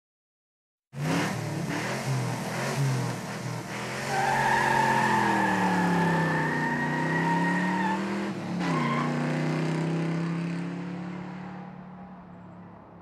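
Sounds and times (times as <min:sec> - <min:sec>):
car engine running hard: 0:01.0 - 0:12.9
tyres squealing: 0:04.1 - 0:09.1.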